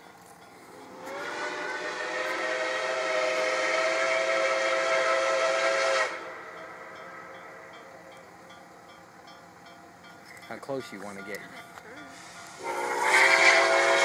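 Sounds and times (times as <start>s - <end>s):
steam hissing: 0.5s - 7.6s, 10.8s - 14.0s
steam locomotive whistle: 0.8s - 6.6s, 12.0s - 14.0s.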